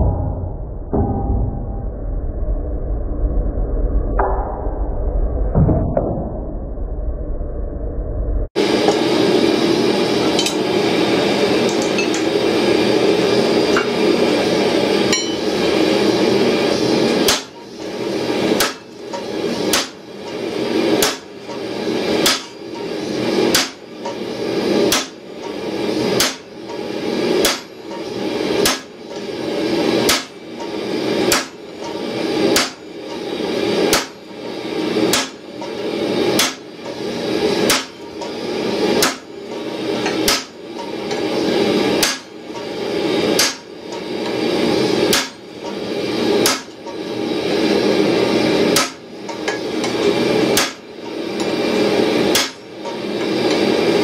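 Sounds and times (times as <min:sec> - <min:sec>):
hammer striking steel punch: 0:00.0 - 0:01.8, 0:15.1 - 0:15.4, 0:17.2 - 0:17.6, 0:18.6 - 0:20.0, 0:21.0 - 0:21.3, 0:22.2 - 0:22.6, 0:23.5 - 0:23.8, 0:24.9 - 0:25.2, 0:26.2 - 0:26.4, 0:27.4 - 0:27.7, 0:31.3 - 0:31.6, 0:32.6 - 0:32.8, 0:33.9 - 0:34.2, 0:35.1 - 0:35.4, 0:36.4 - 0:36.6, 0:37.6 - 0:38.0, 0:39.0 - 0:39.3, 0:40.2 - 0:40.6, 0:42.0 - 0:42.3, 0:43.4 - 0:43.7, 0:45.1 - 0:45.4, 0:46.4 - 0:46.7, 0:48.8 - 0:49.6, 0:50.5 - 0:50.8, 0:52.3 - 0:52.6.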